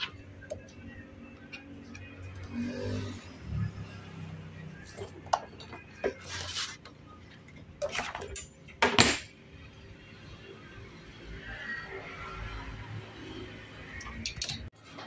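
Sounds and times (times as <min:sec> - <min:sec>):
ruler scraping: 0:05.7 - 0:06.9.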